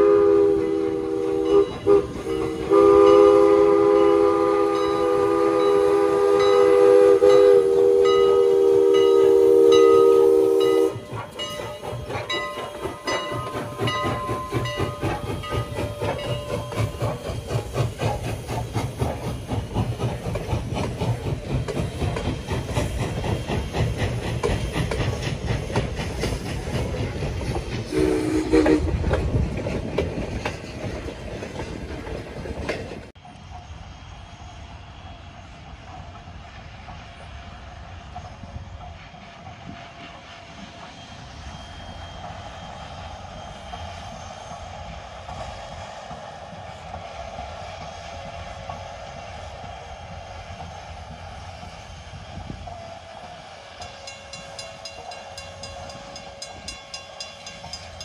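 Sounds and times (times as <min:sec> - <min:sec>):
steam locomotive whistle: 0:00.0 - 0:26.0, 0:27.8 - 0:29.4, 0:39.4 - 0:58.0
low train rumble: 0:00.0 - 0:58.0
train wheels clattering on rails: 0:00.0 - 0:58.0.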